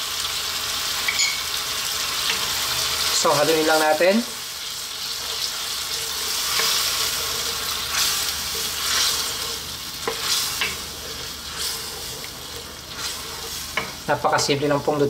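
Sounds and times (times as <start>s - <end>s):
sauce sizzling in a wok: 0.0s - 15.0s
spatula stirring and scraping: 4.7s - 14.6s.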